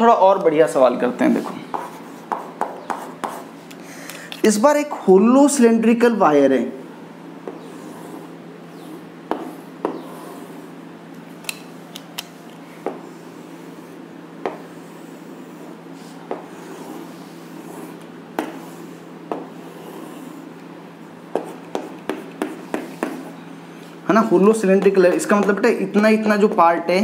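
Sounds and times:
steady low hum: 0:00.0 - 0:27.0
chalk tapping and scraping: 0:01.3 - 0:03.8, 0:07.4 - 0:10.8, 0:12.2 - 0:20.7, 0:21.3 - 0:23.4, 0:24.2 - 0:25.7.

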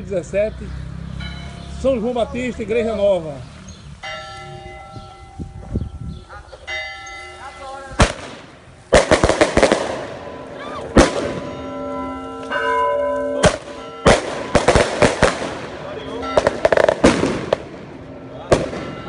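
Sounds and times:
church bells ringing: 0:01.0 - 0:08.0, 0:09.9 - 0:19.0
firework bangs: 0:08.0 - 0:10.3, 0:10.9 - 0:11.6, 0:13.4 - 0:19.0.

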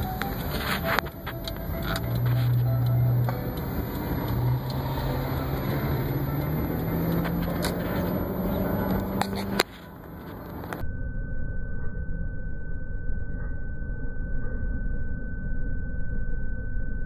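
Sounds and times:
car engine hum: 0:00.0 - 0:10.8
road traffic: 0:00.0 - 0:10.8
steady high tone: 0:00.0 - 0:17.0.

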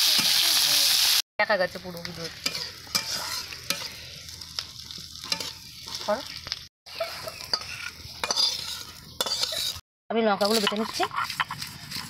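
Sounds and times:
food sizzling in oil: 0:00.0 - 0:09.8
metal spatula scraping pan: 0:02.3 - 0:04.0, 0:05.2 - 0:06.2, 0:06.9 - 0:09.8, 0:10.4 - 0:12.0.

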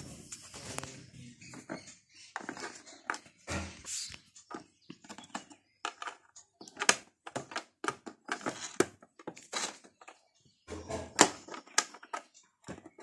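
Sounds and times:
plastic rustling: 0:07.4 - 0:10.2.

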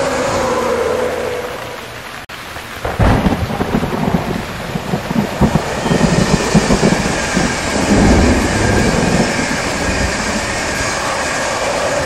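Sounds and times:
locomotive humming whine: 0:00.0 - 0:02.2, 0:04.7 - 0:12.0
heavy rain: 0:00.0 - 0:12.0
train wheels rumbling on rail: 0:03.8 - 0:12.0.

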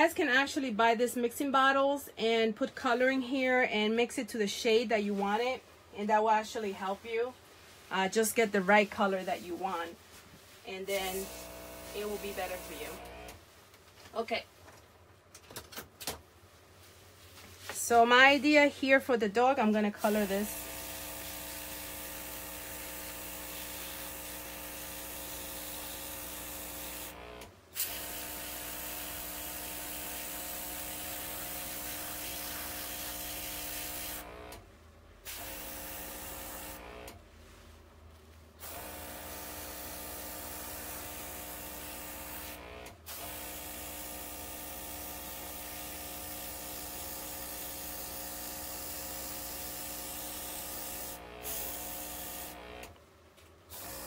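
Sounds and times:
compressor motor hum: 0:11.0 - 0:13.4, 0:20.2 - 0:34.6, 0:35.3 - 0:37.2, 0:38.6 - 0:53.0, 0:53.7 - 0:54.0.

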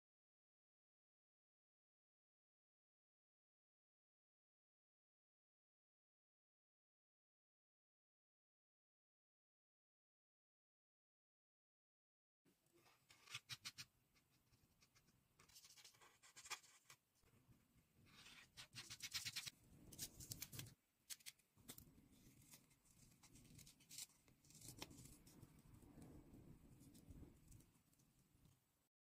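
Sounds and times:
rubbing and handling noise: 0:12.5 - 0:28.6
marker scratching on paper: 0:12.8 - 0:17.0.

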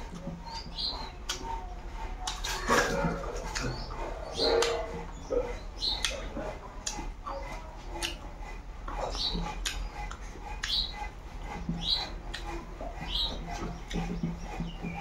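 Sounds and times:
wet chewing and lip smacking: 0:00.4 - 0:01.6, 0:02.2 - 0:05.1, 0:05.8 - 0:15.0
sharp mouth clicks: 0:02.2 - 0:02.5, 0:06.0 - 0:06.2, 0:08.0 - 0:08.2, 0:09.5 - 0:10.8, 0:12.3 - 0:12.5.

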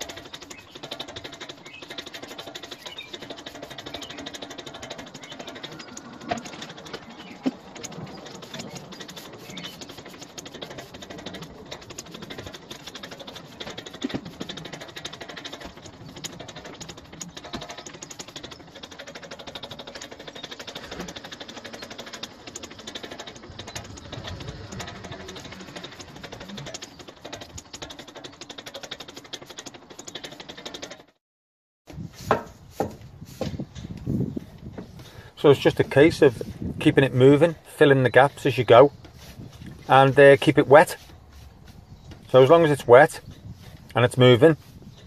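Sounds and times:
stiff broom scrubbing paving: 0:00.0 - 0:31.0, 0:31.9 - 0:45.0
sharp knocks: 0:32.2 - 0:33.6.

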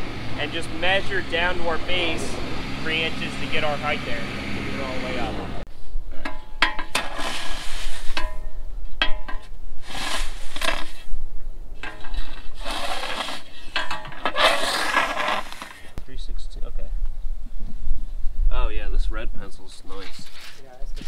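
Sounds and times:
metal board scraping through stone: 0:06.6 - 0:08.5, 0:09.2 - 0:11.1, 0:11.8 - 0:16.0.

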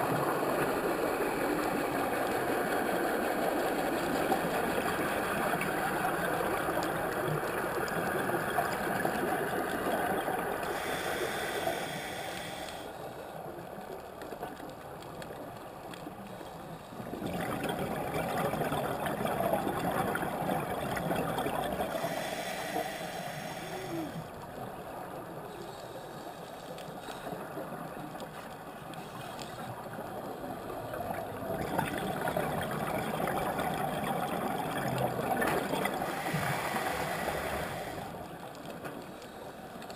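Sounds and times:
exhaled air bubbling underwater: 0:00.0 - 0:13.0, 0:16.1 - 0:25.6, 0:26.9 - 0:38.5
regulator inhalation hiss: 0:10.7 - 0:12.9, 0:21.9 - 0:24.2, 0:36.0 - 0:38.1.

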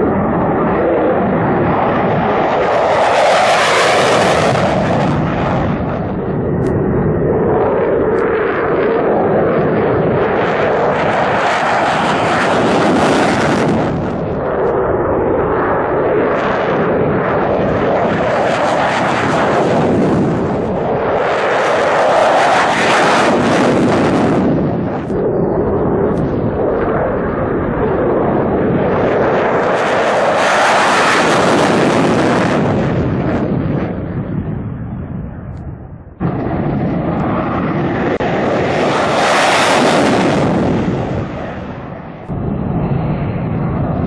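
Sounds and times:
fighter jets taking off: 0:00.0 - 0:44.0.

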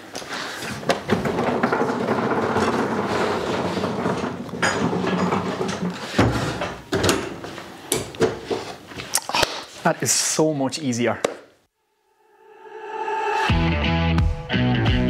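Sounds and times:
caster wheels rolling on concrete: 0:00.3 - 0:06.8.

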